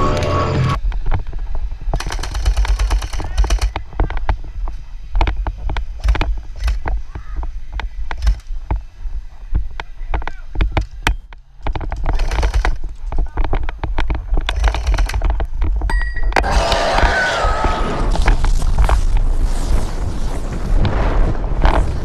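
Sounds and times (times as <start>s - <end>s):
airsoft gunfire clicks and pops: 1.9s - 4.4s, 5.2s - 7.0s, 8.0s - 8.6s, 9.8s - 15.7s.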